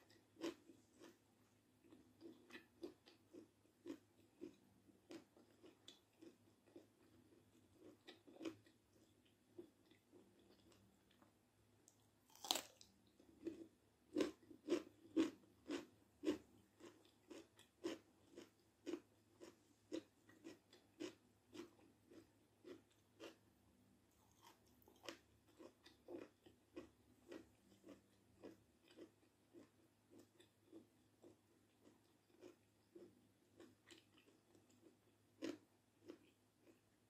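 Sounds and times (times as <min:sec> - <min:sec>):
cucumber crunching: 0:12.3 - 0:23.4.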